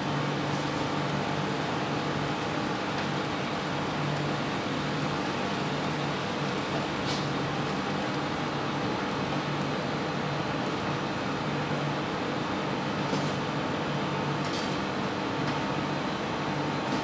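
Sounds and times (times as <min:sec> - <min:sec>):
kitchen machinery humming: 0:00.0 - 0:13.1.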